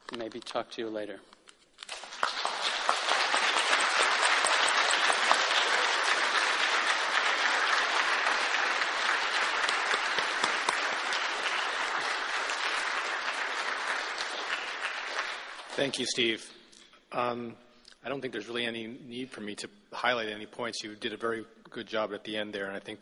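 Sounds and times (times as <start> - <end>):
audience applauding: 1.9 - 16.3.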